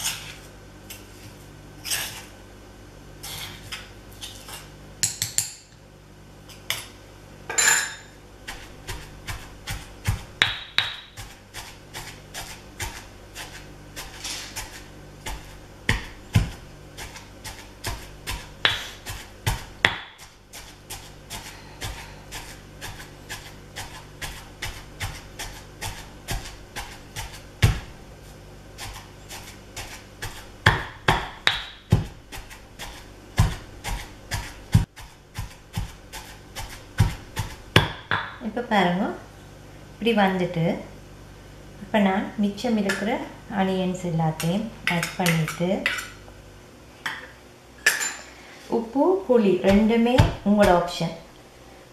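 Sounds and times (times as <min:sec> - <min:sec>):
stone pestle thudding in mortar: 0:09.7 - 0:11.3, 0:17.5 - 0:20.2, 0:30.2 - 0:32.5, 0:37.0 - 0:38.4, 0:49.7 - 0:50.8.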